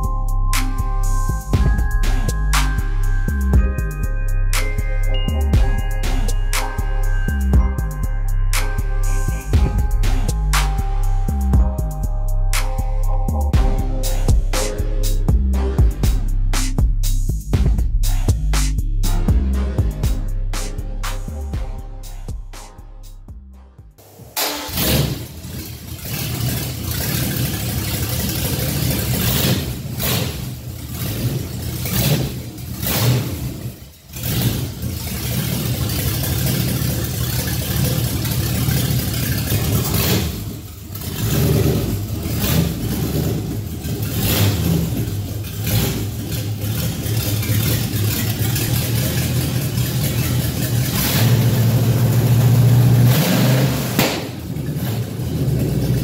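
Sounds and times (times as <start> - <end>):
boat engine revving: 24.4 - 56.0.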